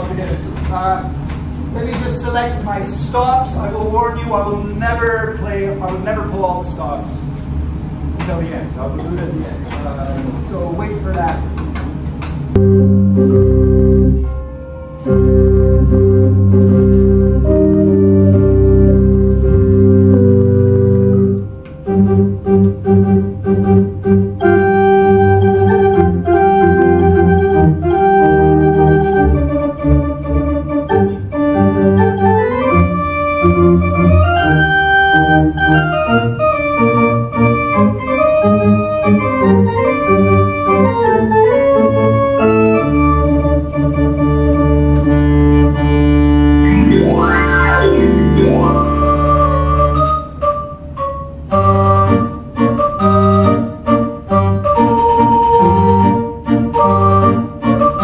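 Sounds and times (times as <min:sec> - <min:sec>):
theatre organ playing: 0:12.5 - 0:58.0.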